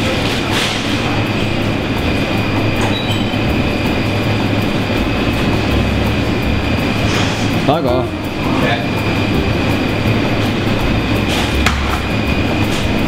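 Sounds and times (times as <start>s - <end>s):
refrigeration hum and hiss: 0.0s - 13.0s.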